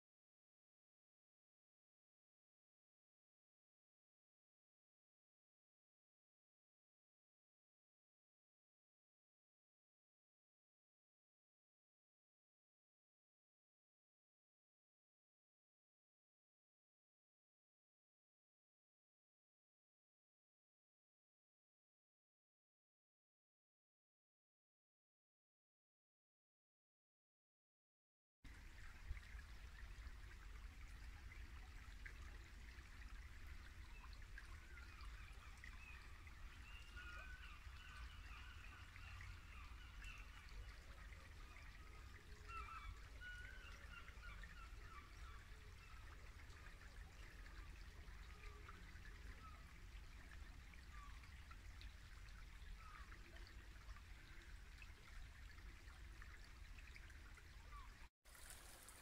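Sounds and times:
brook babbling: 28.5 - 59.0.

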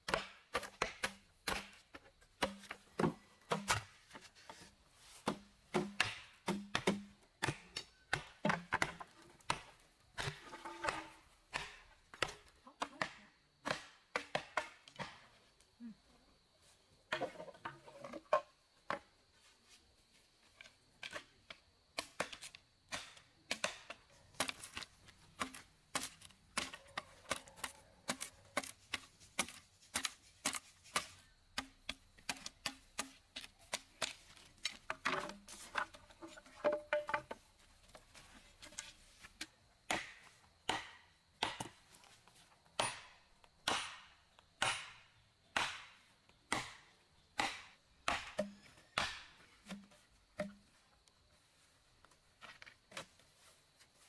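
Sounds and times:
blade chopping bamboo: 0.0 - 1.8, 28.1 - 35.4, 45.6 - 49.4.

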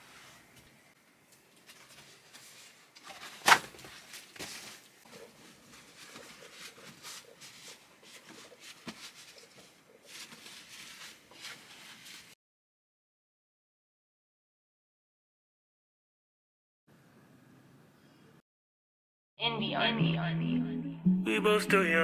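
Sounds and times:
paper crinkling and rustling: 1.5 - 12.4.

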